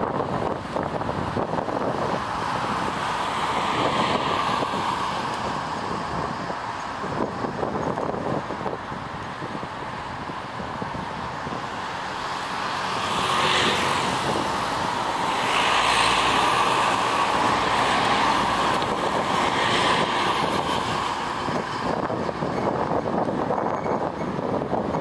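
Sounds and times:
distant engines droning: 0.1s - 25.0s.

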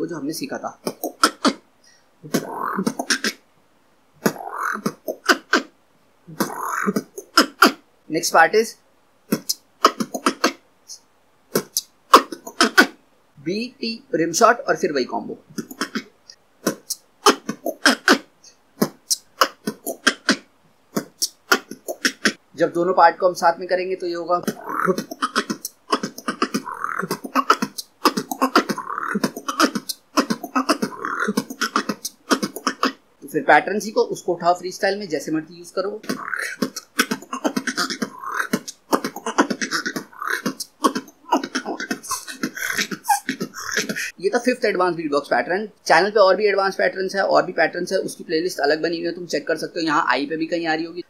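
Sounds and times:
person beatboxing: 0.4s - 1.6s, 2.2s - 3.4s, 4.2s - 5.7s, 6.3s - 7.8s, 9.3s - 13.0s, 15.5s - 22.4s, 24.4s - 33.4s, 35.5s - 44.2s.

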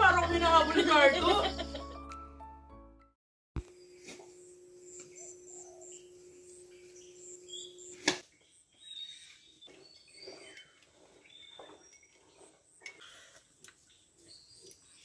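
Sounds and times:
steady hum: 3.6s - 8.2s
birds chirping and whistling: 4.8s - 15.0s.

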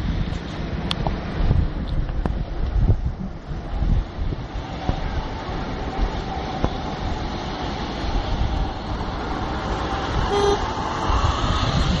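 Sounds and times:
road traffic rumble: 0.0s - 12.0s
car horn toot: 10.3s - 10.6s.

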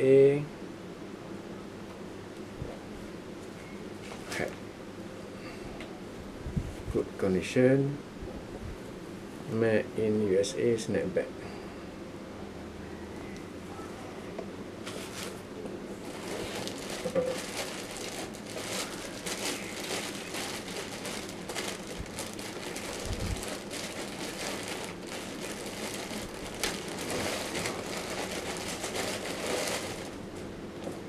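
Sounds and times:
plastic bag crinkling: 14.8s - 15.4s, 16.0s - 30.3s.

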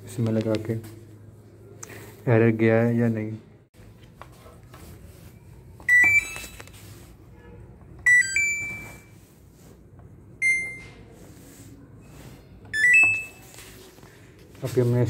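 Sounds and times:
washing machine beeping chimes: 5.8s - 6.7s, 8.0s - 9.2s, 10.4s - 11.1s, 12.7s - 13.5s.

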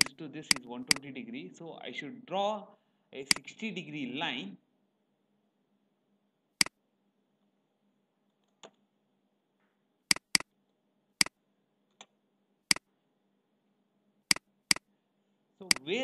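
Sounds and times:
computer mouse clicking: 0.0s - 1.0s, 10.1s - 10.5s.

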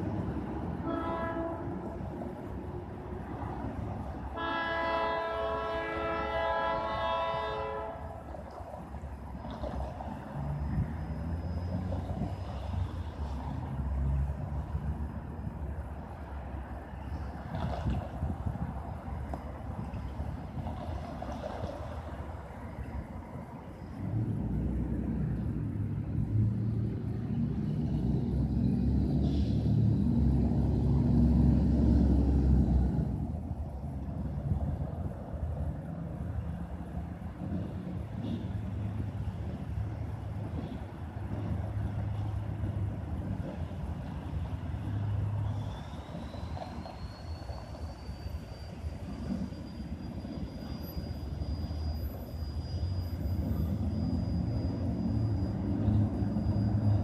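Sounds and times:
diesel locomotive engines rumbling: 0.0s - 57.0s
locomotive air horn blast: 0.8s - 2.0s, 4.3s - 8.3s.

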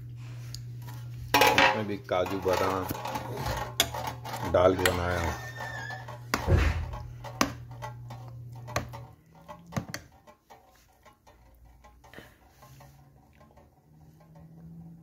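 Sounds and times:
steady low hum: 0.0s - 15.0s
metal spoon stirring in pot: 0.5s - 15.0s
thud: 6.4s - 6.9s.

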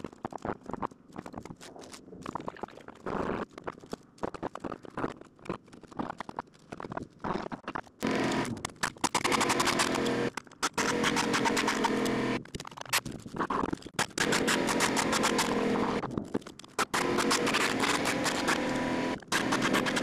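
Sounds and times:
loud machine-like rattle: 8.0s - 12.4s, 14.0s - 16.0s, 16.8s - 20.0s.

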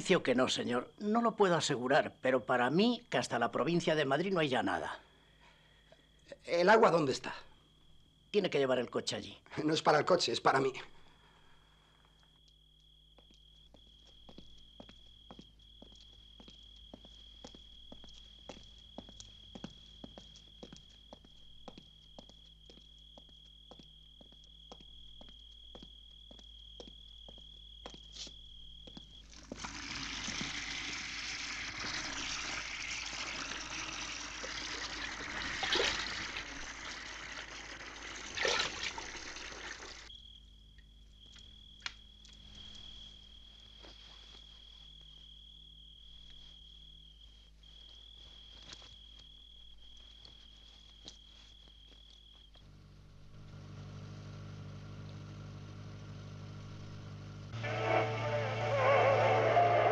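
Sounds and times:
cricket trilling: 0.0s - 52.8s
water running from tap: 29.4s - 40.1s
car engine droning: 52.6s - 59.9s.

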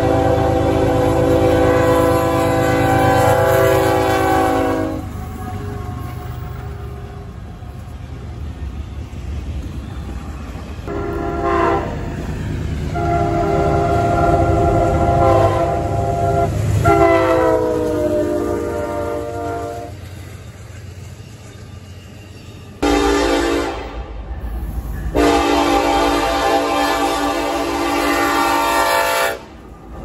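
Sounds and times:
locomotive air horn blasts: 0.0s - 6.1s, 10.9s - 12.1s, 12.9s - 20.0s, 22.8s - 24.1s, 25.1s - 29.6s
passing train rumble: 0.0s - 30.0s.

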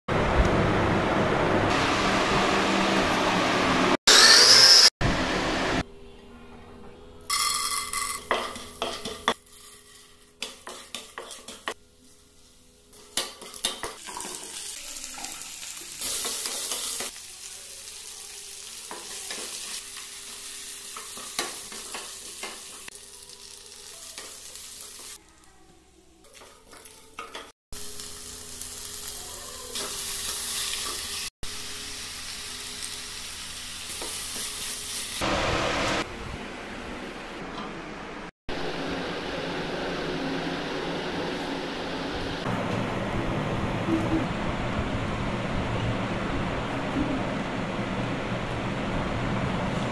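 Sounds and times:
oil sizzling in a pan: 7.3s - 25.4s, 27.8s - 36.0s.

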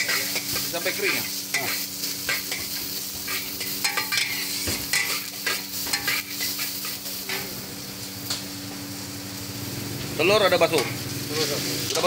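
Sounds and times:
ladle scraping and clanking on wok: 0.0s - 7.6s
food sizzling: 0.0s - 12.0s.

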